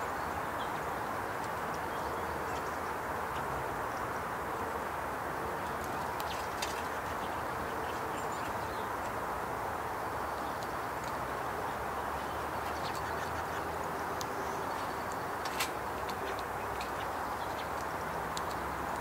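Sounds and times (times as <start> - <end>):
rushing outdoor background noise: 0.0 - 19.0.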